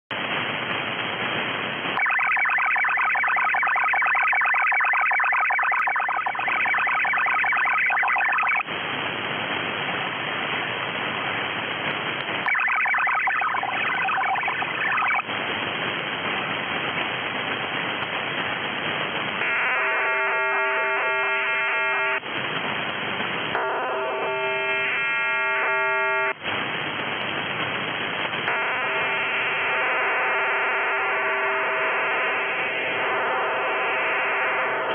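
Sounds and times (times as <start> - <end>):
radio static hiss: 0.1 - 20.0, 21.2 - 23.6, 26.3 - 30.1
multi-tone digital data bursts: 2.0 - 8.7, 12.4 - 15.3.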